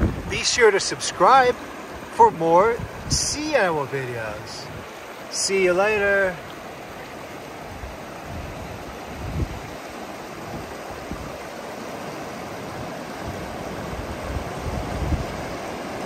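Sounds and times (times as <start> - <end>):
water rushing over rocks: 0.0 - 16.0.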